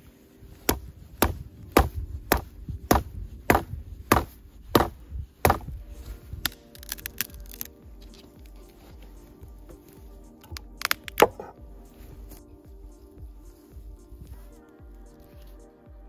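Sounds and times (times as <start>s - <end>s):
wood chopping blows: 0.7s - 5.8s.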